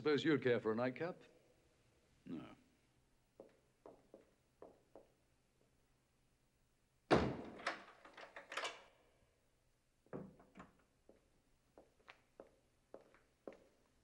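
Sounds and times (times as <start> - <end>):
heavy door slamming shut: 7.1 - 7.8.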